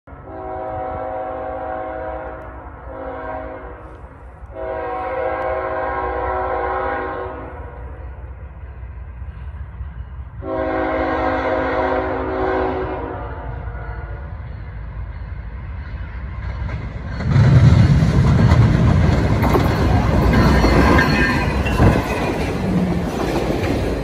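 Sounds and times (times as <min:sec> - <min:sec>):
locomotive air horn blasts: 0:00.2 - 0:08.0, 0:10.4 - 0:14.3.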